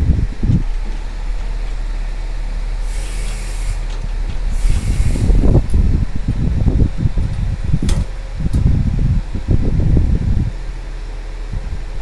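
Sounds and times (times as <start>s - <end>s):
forklift engine rumble: 0.0s - 12.0s
short hisses: 2.8s - 3.9s, 4.5s - 5.5s.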